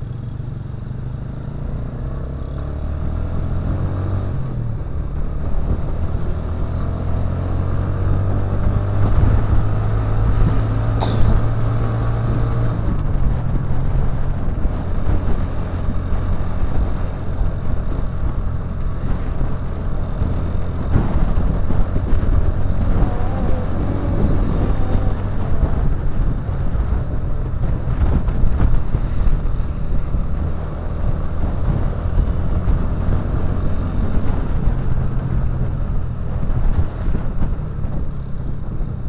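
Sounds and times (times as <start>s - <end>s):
motorcycle engine running: 0.0s - 39.0s
wind buffeting microphone: 2.0s - 39.0s.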